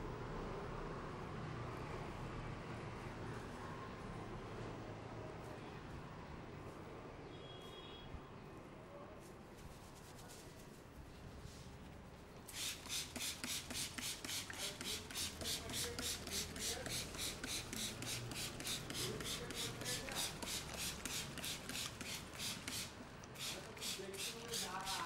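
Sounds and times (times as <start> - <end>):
spray bottle squirting water: 12.5 - 25.0.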